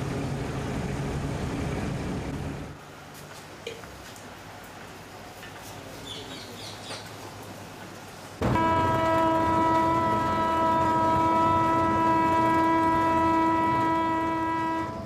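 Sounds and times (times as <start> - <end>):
train horn blast: 8.4 - 15.0.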